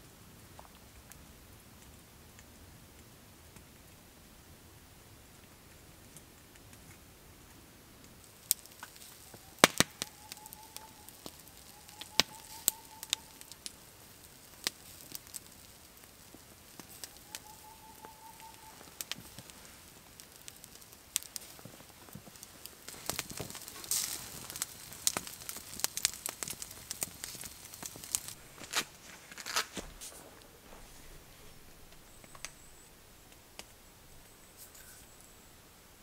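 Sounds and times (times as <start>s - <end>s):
campfire crackling: 0.0s - 36.0s
sharp fire pops: 8.1s - 33.8s.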